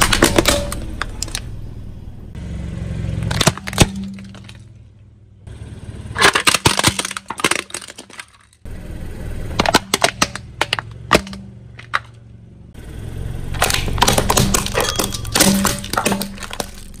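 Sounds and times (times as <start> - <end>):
plastic toys cracking under tyre: 0.0 - 1.5, 3.2 - 4.8, 6.1 - 8.7, 9.5 - 12.2, 13.5 - 17.0
steady low hum: 8.6 - 17.0.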